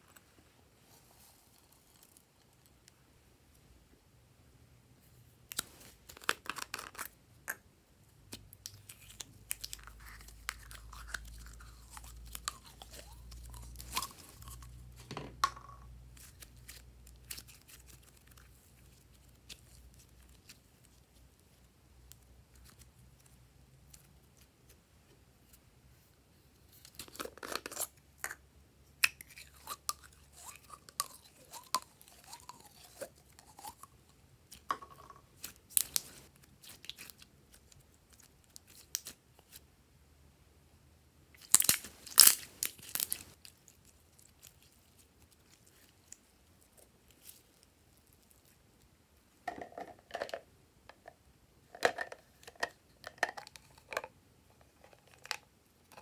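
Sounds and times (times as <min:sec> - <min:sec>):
hands squeezing sticky slime: 0:08.3 - 0:14.8, 0:16.2 - 0:24.5, 0:35.3 - 0:39.6, 0:41.4 - 0:48.6.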